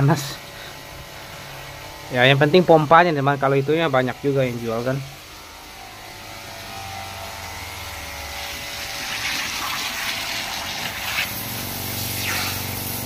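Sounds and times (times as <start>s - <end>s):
water pump humming: 0.0s - 13.0s
water jet hissing: 8.4s - 13.0s.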